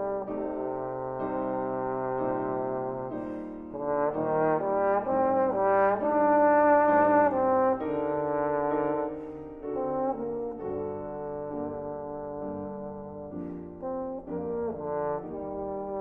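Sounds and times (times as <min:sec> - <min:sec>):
piano accompaniment: 0:00.0 - 0:16.0
trombone melody: 0:00.0 - 0:16.0.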